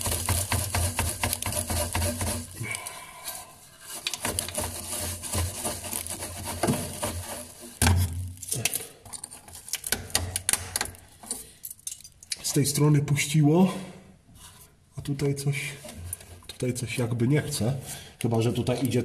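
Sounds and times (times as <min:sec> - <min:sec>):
brush scrubbing rust off bolt: 0:00.0 - 0:02.6.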